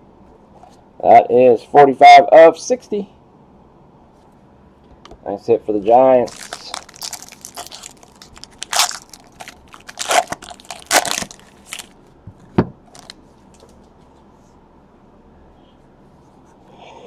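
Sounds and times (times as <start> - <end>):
foil wrapper crinkling: 6.2 - 12.0, 12.9 - 13.2.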